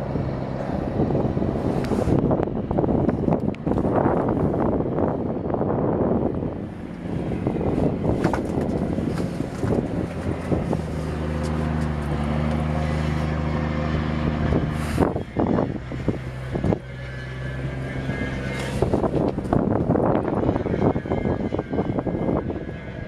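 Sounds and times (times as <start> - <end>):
boat engine humming: 0.0 - 23.0
microphone handling rustles: 7.7 - 12.6.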